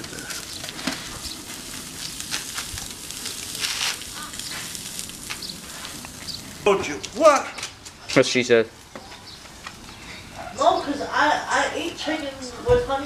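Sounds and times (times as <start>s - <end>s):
crackles and pops: 0.0s - 10.2s
meat sizzling on a grill: 0.0s - 13.0s.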